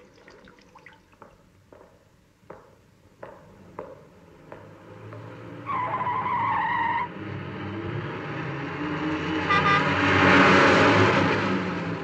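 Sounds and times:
car tyres squealing: 0:05.1 - 0:07.2.

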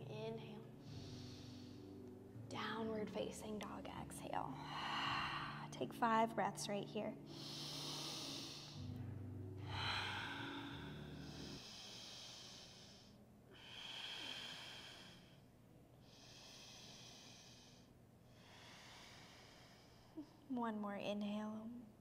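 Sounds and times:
low steady hum: 0:00.0 - 0:22.0
woman breathing deeply: 0:00.7 - 0:02.3, 0:04.5 - 0:05.8, 0:07.2 - 0:20.5.

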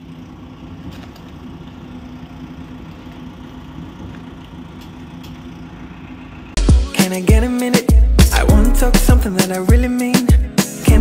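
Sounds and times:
engine idling hum: 0:00.0 - 0:06.7.

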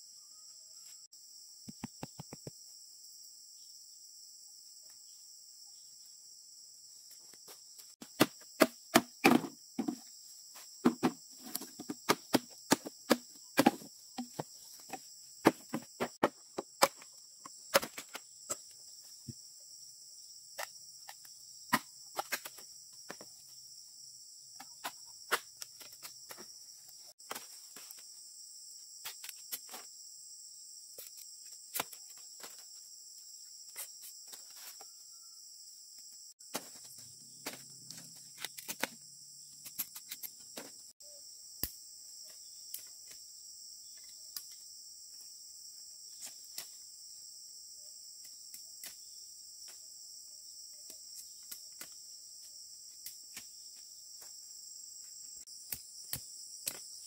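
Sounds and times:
insects chirping chorus: 0:00.0 - 0:57.0.

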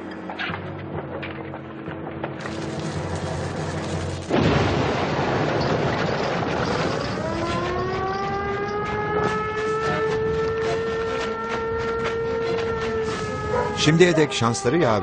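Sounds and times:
explosion: 0:02.4 - 0:07.6
alarm siren winding up: 0:07.0 - 0:15.0.

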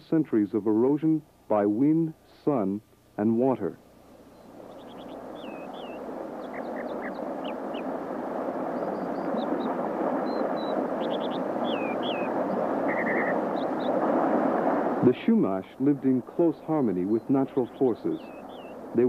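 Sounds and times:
running water stream: 0:00.0 - 0:19.0
small birds chirping: 0:04.1 - 0:14.2, 0:15.4 - 0:19.0.

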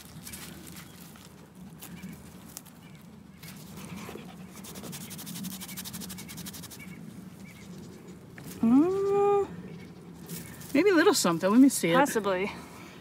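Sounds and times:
dog panting: 0:03.8 - 0:05.3.

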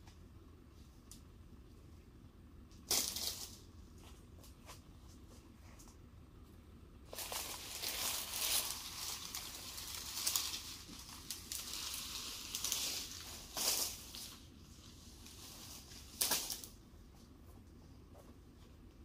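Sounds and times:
leaves crackling: 0:02.8 - 0:03.8, 0:07.1 - 0:16.8
palm fronds rustling through grass: 0:02.8 - 0:06.0, 0:07.0 - 0:17.6.

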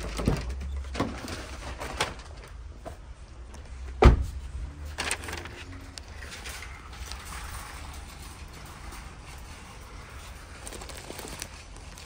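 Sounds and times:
paper bags rustling and knocking: 0:00.0 - 0:03.1, 0:04.0 - 0:12.0.

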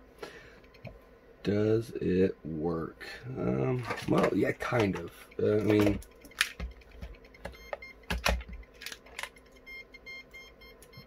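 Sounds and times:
plastic meter clicks and knocks: 0:03.9 - 0:09.5
rapid high beeps: 0:05.2 - 0:08.8, 0:09.4 - 0:11.0.

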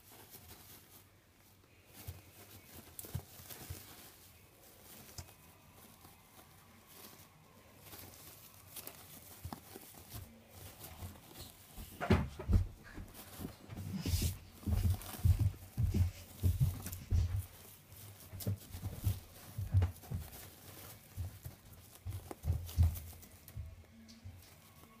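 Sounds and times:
guinea pigs rustling in bedding: 0:00.0 - 0:25.0
low thuds: 0:11.8 - 0:17.6.

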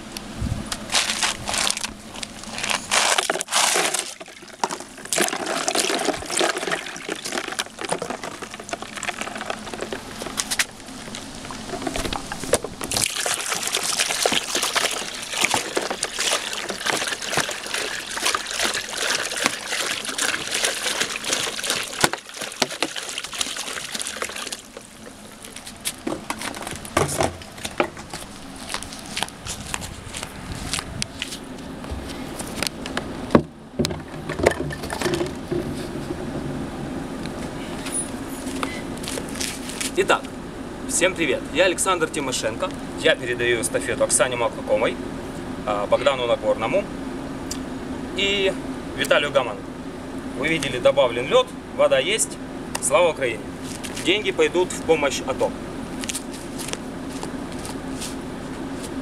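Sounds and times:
water pouring and sloshing: 0:00.9 - 0:30.8, 0:33.8 - 0:35.8
ice and water splashing into basin: 0:01.0 - 0:26.6
ice cubes clinking: 0:02.6 - 0:10.3.

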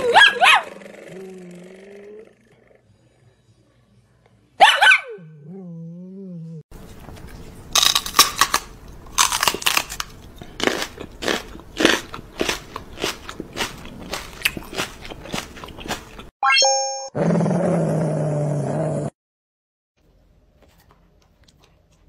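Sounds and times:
dog crunching chews: 0:06.8 - 0:16.3.

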